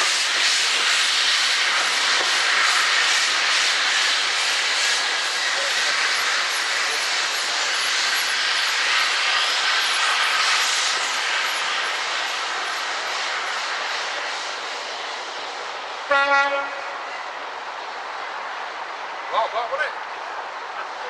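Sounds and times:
steam locomotive rush of steam: 0:00.0 - 0:21.0
steam whistle blast: 0:16.1 - 0:16.9.

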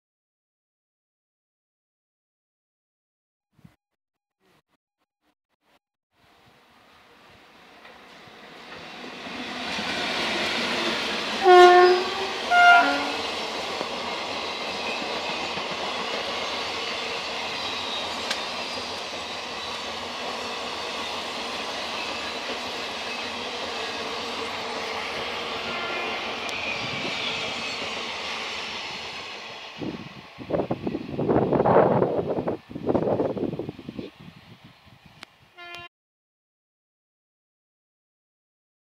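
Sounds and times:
train wheels rushing on rails: 0:07.4 - 0:34.6
train horn blasts: 0:11.4 - 0:13.3, 0:25.6 - 0:26.2, 0:35.5 - 0:35.9.

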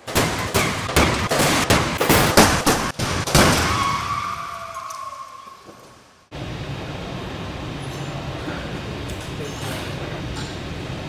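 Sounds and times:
crunching metal and plastic impacts: 0:00.0 - 0:04.2.

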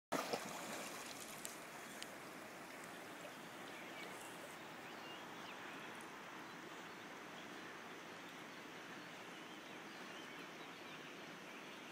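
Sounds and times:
small splashes: 0:00.1 - 0:04.6
river water rushing: 0:00.1 - 0:11.9.

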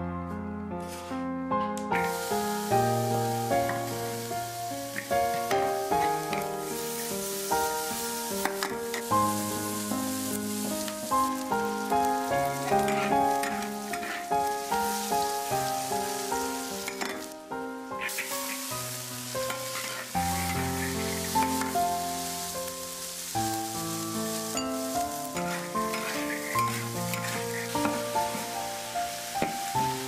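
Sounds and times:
slow gentle background music: 0:00.0 - 0:30.0
pork sizzling in a wok: 0:01.9 - 0:30.0
metal spatula scraping a wok: 0:12.5 - 0:14.4, 0:19.4 - 0:21.8, 0:25.4 - 0:28.0.

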